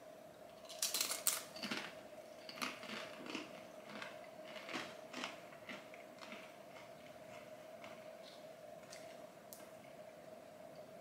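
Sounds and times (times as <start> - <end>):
crunching of crisps being chewed: 0.6 - 8.1.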